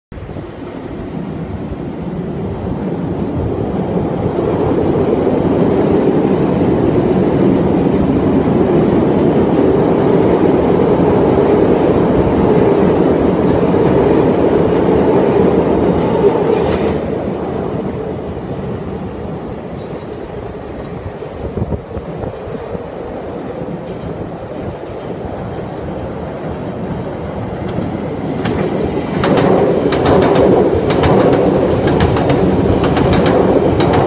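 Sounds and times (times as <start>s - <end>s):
train passing through station: 0.1s - 34.0s
sharp clack: 28.4s - 34.0s.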